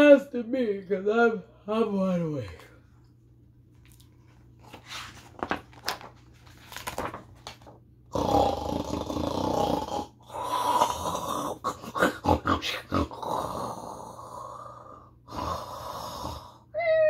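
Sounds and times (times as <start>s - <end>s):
book page rustling: 3.8s - 7.9s.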